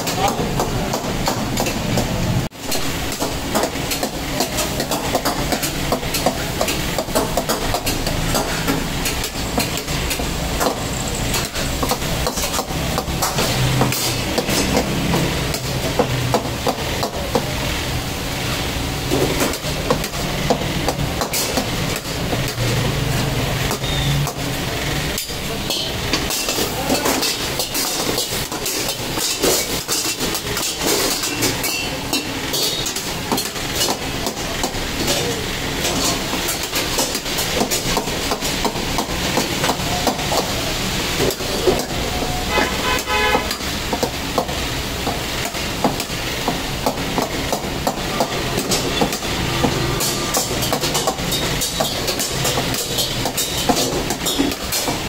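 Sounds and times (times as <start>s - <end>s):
steady sizzle: 2.5s - 55.0s
vehicle horn: 42.3s - 43.6s.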